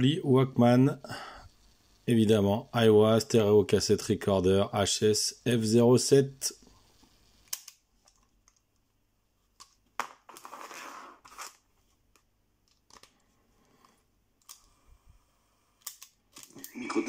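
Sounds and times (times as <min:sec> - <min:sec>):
small plastic clicks: 0:07.5 - 0:08.6, 0:12.1 - 0:13.2, 0:15.8 - 0:16.7.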